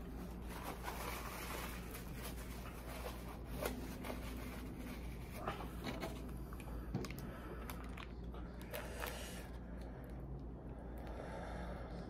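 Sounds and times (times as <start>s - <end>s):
plastic packet crinkling and tearing: 0.0s - 5.4s
steady low hum: 0.0s - 12.0s.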